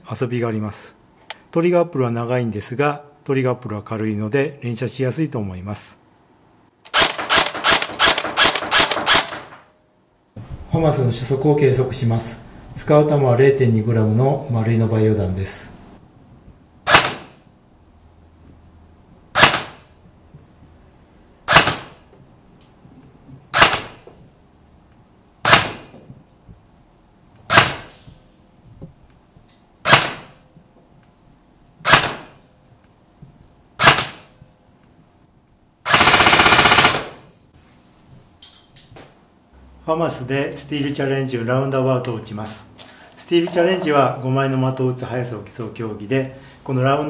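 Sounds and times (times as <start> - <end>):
airsoft gun full-auto burst: 6.9 - 9.4, 31.8 - 32.3, 33.8 - 34.2, 35.8 - 37.3
airsoft gun single shots: 16.8 - 17.4, 19.3 - 19.9, 21.5 - 22.0, 23.5 - 24.0, 25.4 - 25.9, 27.5 - 28.0, 29.8 - 30.4, 31.8 - 32.4, 33.8 - 34.3.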